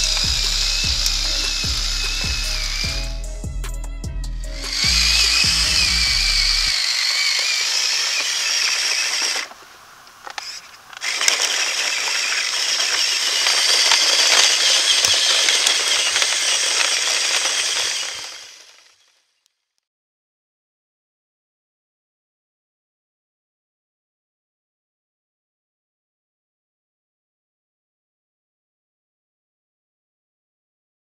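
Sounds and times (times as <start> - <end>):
toy truck motor whining: 0.0 - 3.2, 4.4 - 19.4
music with bass line: 0.0 - 6.7.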